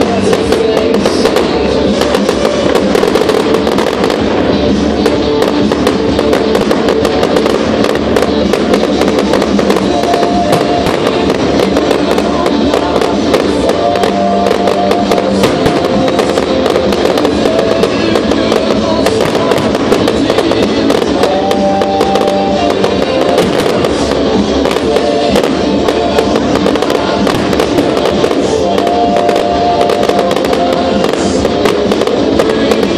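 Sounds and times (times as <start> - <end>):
fireworks popping and crackling: 0.0 - 32.9
loud music with held notes: 0.0 - 32.9.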